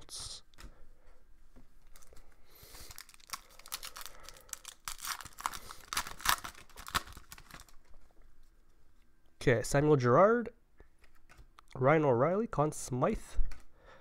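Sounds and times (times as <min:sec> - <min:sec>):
wrapper being torn and crinkled: 0:01.9 - 0:07.9.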